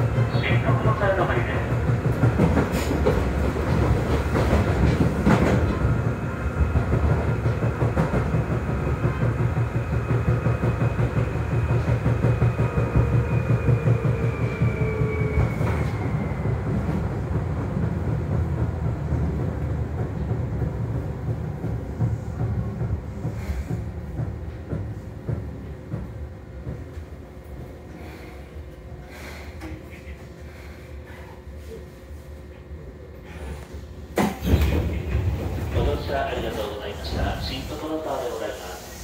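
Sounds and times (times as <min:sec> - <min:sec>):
train wheel rumble on rails: 0:00.0 - 0:39.0.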